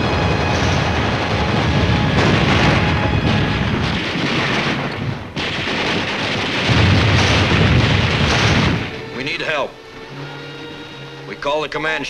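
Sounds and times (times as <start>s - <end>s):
gunfire: 0.0s - 9.3s
shell explosions: 0.0s - 9.6s.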